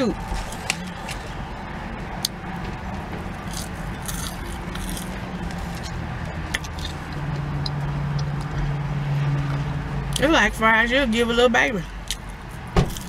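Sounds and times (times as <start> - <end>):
person chewing fries: 3.3 - 8.7, 12.0 - 13.0.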